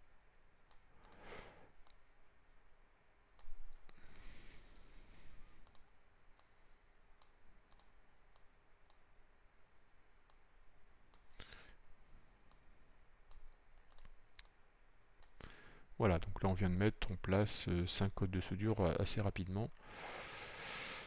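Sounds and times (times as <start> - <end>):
computer mouse clicks: 0.7 - 1.2, 5.6 - 6.5, 7.2 - 9.0, 13.3 - 14.6.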